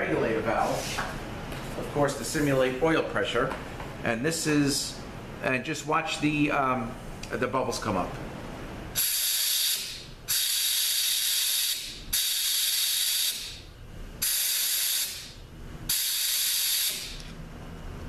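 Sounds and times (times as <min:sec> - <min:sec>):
air blow gun hissing: 0:09.0 - 0:13.6, 0:14.2 - 0:17.3.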